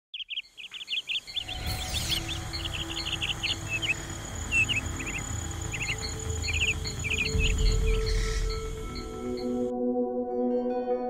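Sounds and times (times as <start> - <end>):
small birds chirping: 0.1 - 9.7
low steady music: 1.3 - 11.0
whoosh: 1.4 - 3.0.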